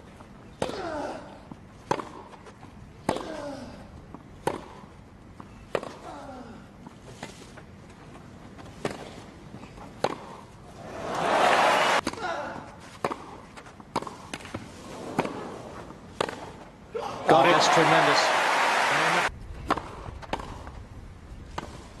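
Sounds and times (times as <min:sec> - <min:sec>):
rackets striking tennis ball: 0:01.8 - 0:03.4, 0:04.4 - 0:05.0, 0:05.7 - 0:06.0, 0:09.9 - 0:10.5, 0:13.0 - 0:16.7, 0:19.6 - 0:20.7.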